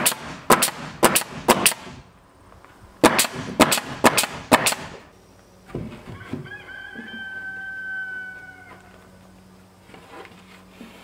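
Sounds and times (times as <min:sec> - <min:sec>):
nail gun firing: 0:00.0 - 0:02.0, 0:03.0 - 0:05.0.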